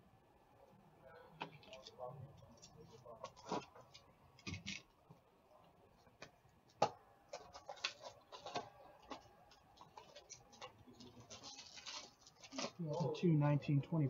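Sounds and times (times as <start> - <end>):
cardboard scraping and crinkling: 7.4 - 12.8.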